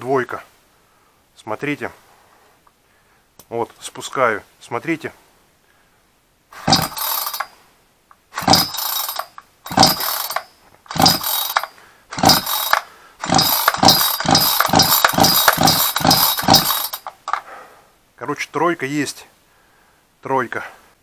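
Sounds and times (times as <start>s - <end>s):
chainsaw recoil starter pulls: 6.6s - 7.5s, 8.4s - 17.5s
engine cranking without firing: 6.6s - 7.5s, 8.4s - 17.5s.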